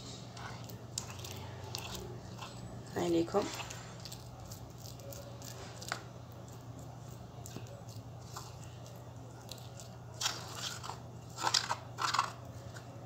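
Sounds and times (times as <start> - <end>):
metal spoon scraping a bowl: 0.0 - 6.0.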